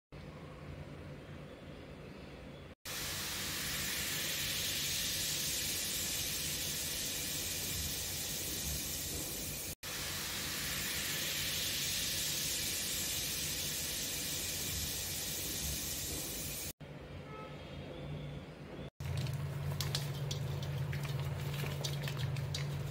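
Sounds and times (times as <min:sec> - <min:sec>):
cleaning liquid fizzing and hissing: 0:02.9 - 0:16.7.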